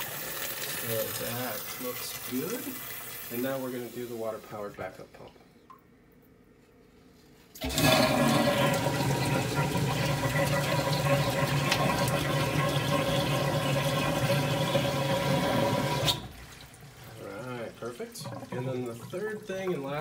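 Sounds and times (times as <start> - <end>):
water pump rushing and humming: 0.0 - 2.7, 7.6 - 20.0.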